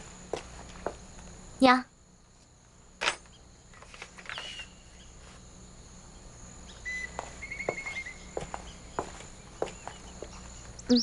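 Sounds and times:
birds chirping: 3.2 - 5.3, 6.0 - 11.0
high-pitched insect drone: 3.3 - 11.0.

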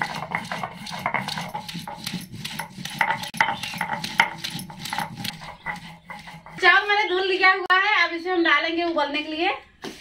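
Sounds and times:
stone roller scraping on stone slab: 0.0 - 7.6.

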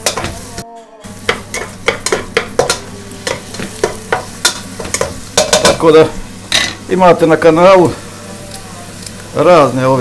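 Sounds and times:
spoon scraping a pan: 0.0 - 5.9
vegetables sizzling: 0.0 - 10.0.

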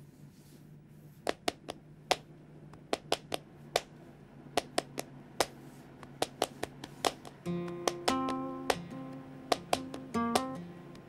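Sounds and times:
faint recording hiss: 0.0 - 11.0
hand claps: 4.6 - 11.0.

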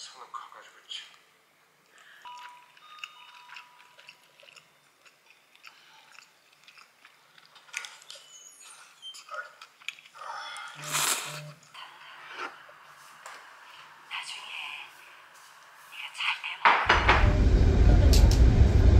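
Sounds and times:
quiet background music: 0.0 - 9.6
chewing: 1.8 - 11.6.

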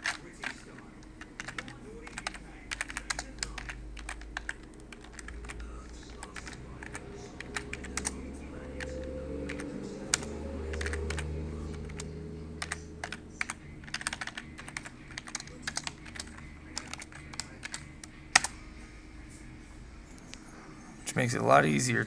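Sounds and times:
typing on computer keyboard: 0.0 - 8.2, 8.8 - 18.5.

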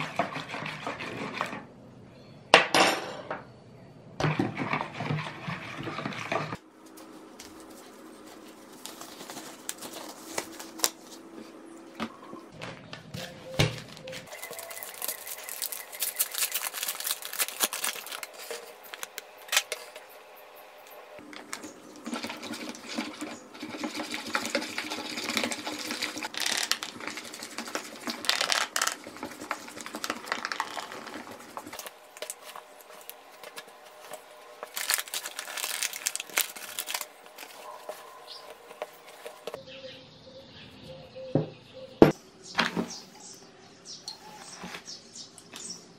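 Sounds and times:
metal spoon scraping plastic bowl: 0.0 - 1.7
flour bag crinkling: 7.0 - 11.3, 13.2 - 19.9, 24.3 - 39.6.

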